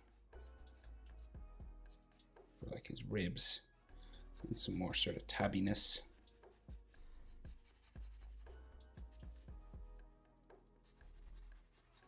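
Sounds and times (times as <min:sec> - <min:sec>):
soft background music: 0:00.0 - 0:12.0
pen scratching on paper: 0:04.2 - 0:09.5, 0:10.8 - 0:12.0.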